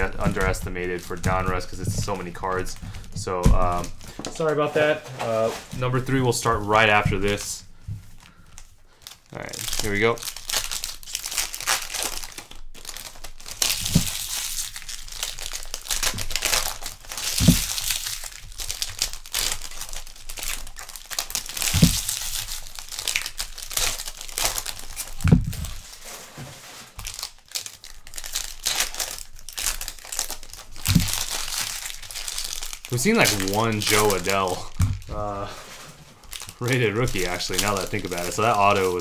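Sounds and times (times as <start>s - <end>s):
dull thumps: 0.0s - 4.4s, 17.3s - 17.9s, 21.6s - 22.2s, 25.2s - 26.6s, 30.8s - 31.3s, 34.7s - 35.3s
card wrappers tearing and crinkling: 0.0s - 39.0s.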